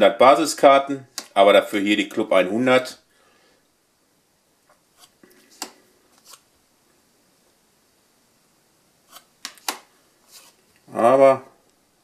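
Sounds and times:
cards clicking and rustling: 0:05.0 - 0:06.5, 0:09.1 - 0:10.8.

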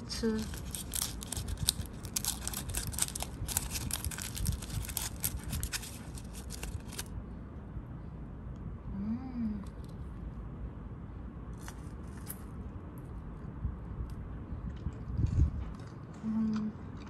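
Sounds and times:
foil wrapper crinkling: 0:00.0 - 0:07.1
person humming: 0:08.9 - 0:09.7.

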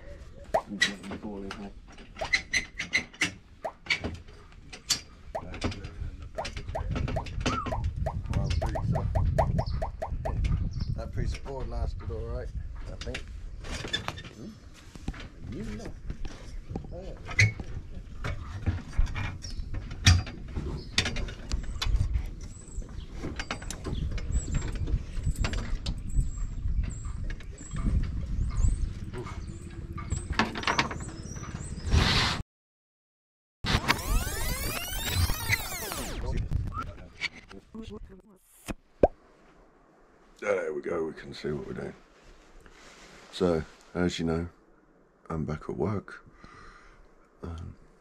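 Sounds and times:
short rising squeaks: 0:33.7 - 0:36.3.

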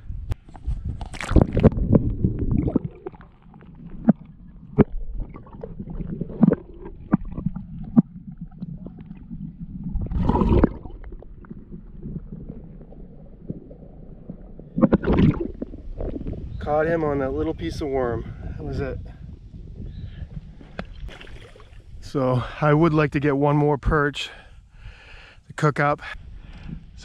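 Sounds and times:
muffled underwater rumbling: 0:00.0 - 0:22.6
water splashing: 0:01.0 - 0:16.4, 0:20.7 - 0:22.0.

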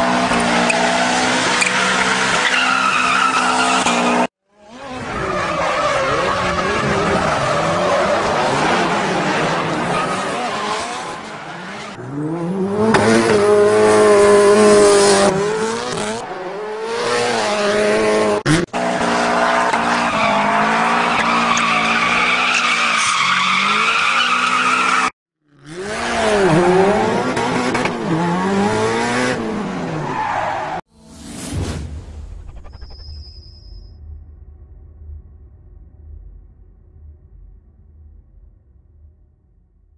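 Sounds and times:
rally car engine revving: 0:00.0 - 0:30.8.

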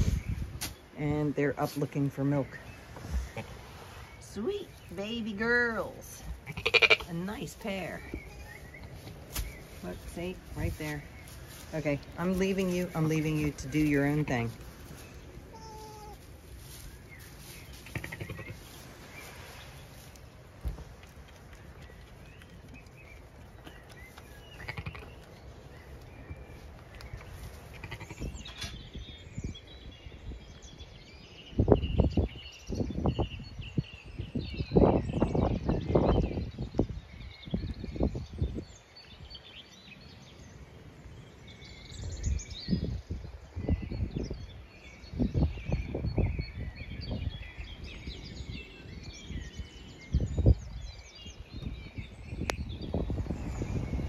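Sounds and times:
small birds chirping: 0:00.0 - 0:54.0
wind gusting on microphone: 0:00.0 - 0:54.0
faint sheep bleat: 0:15.5 - 0:16.2.

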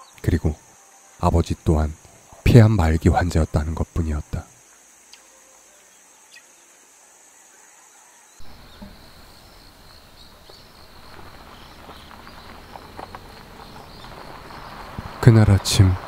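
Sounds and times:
faint chirps: 0:00.0 - 0:16.0
insect drone: 0:00.0 - 0:16.0
low outdoor rumble: 0:08.4 - 0:16.0.

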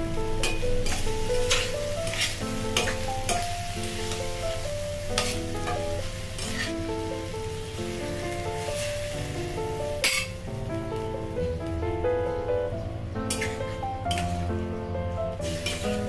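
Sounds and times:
background music: 0:00.0 - 0:16.0
food sizzling: 0:00.0 - 0:16.0
metal spatula scraping pan: 0:00.4 - 0:04.2, 0:05.1 - 0:06.8, 0:13.3 - 0:14.4, 0:15.4 - 0:16.0.

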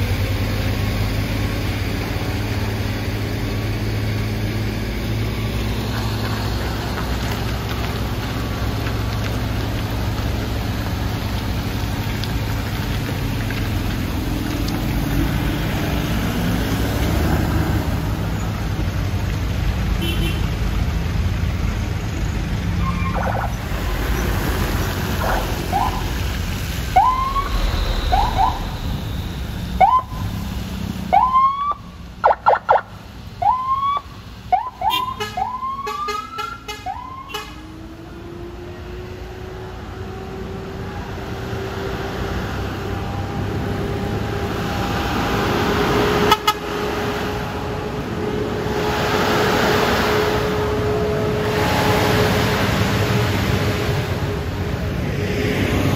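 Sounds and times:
heavy truck engine: 0:00.0 - 0:55.9
rapid pulsing siren blasts: 0:23.0 - 0:23.7, 0:25.1 - 0:26.2, 0:26.8 - 0:30.4, 0:31.1 - 0:37.4
siren whoops: 0:25.2 - 0:26.1, 0:26.9 - 0:29.1, 0:29.8 - 0:30.2, 0:31.1 - 0:32.8, 0:33.4 - 0:37.4.

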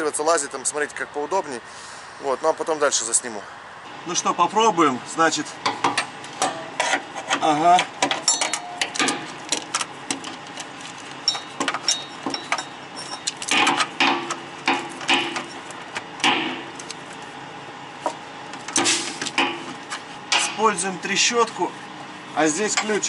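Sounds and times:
ratchet and wrench clinking on bolts: 0:05.9 - 0:09.2, 0:11.2 - 0:13.9.

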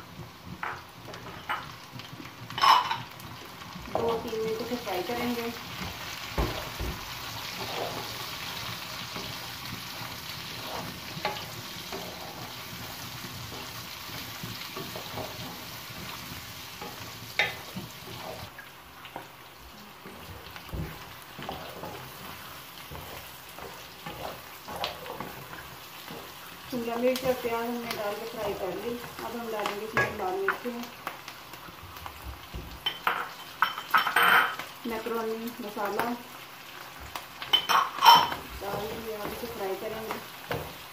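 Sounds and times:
vegetables and meat sizzling in oil: 0:00.0 - 0:40.9
wooden spatula scraping a pan: 0:03.9 - 0:18.5, 0:20.0 - 0:30.6.

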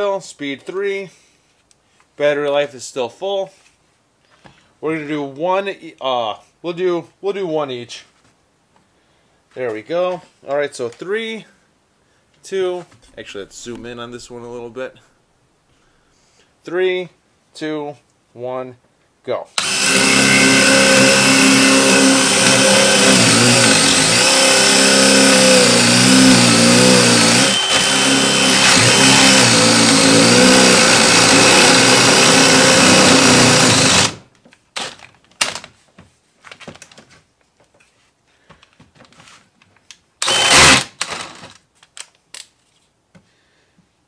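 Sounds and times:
hammer drill boring into wood: 0:19.6 - 0:34.2, 0:40.2 - 0:41.5.

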